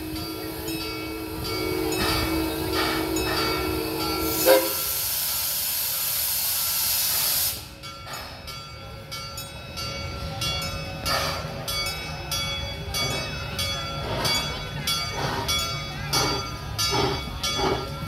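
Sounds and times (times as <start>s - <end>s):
steam whistle chord: 0.0s - 5.4s
train running: 0.0s - 18.0s
steam venting hiss: 0.1s - 8.4s.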